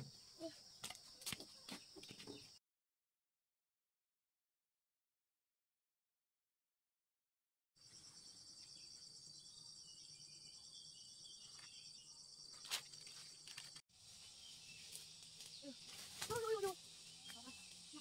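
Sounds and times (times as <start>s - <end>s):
insects trilling: 7.8s - 18.0s.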